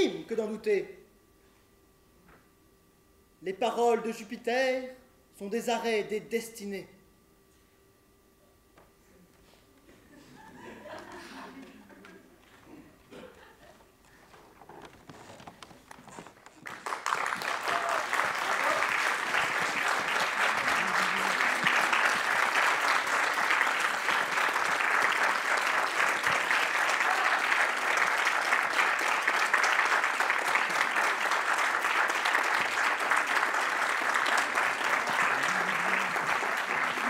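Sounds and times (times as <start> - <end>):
audience applauding: 14.8 - 37.0.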